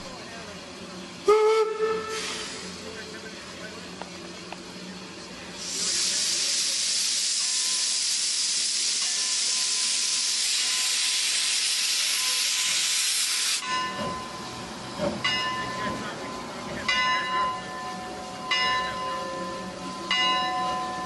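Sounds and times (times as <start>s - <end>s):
steam hissing from locomotive: 1.2s - 15.2s.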